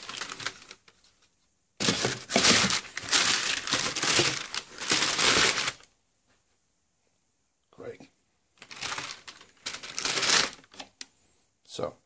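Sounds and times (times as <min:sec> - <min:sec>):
tissue paper crinkling: 0:00.0 - 0:05.9, 0:08.6 - 0:10.8.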